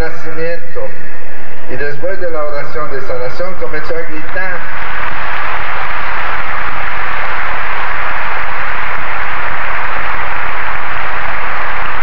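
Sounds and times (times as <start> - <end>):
audience applauding: 4.7 - 12.0.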